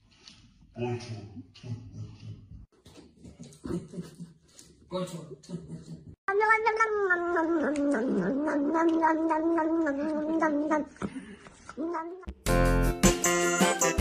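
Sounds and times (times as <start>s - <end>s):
cat yowling: 6.3s - 10.9s, 11.7s - 12.3s.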